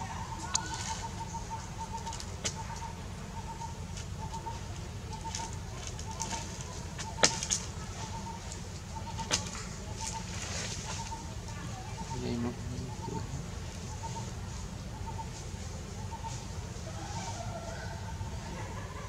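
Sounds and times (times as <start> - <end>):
grass rustling on plastic bag: 4.0 - 12.2.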